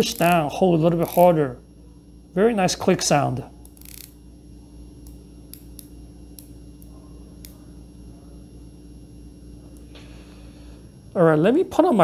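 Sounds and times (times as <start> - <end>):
watch bezel ratchet clicks: 1.0 - 1.3, 3.6 - 4.2.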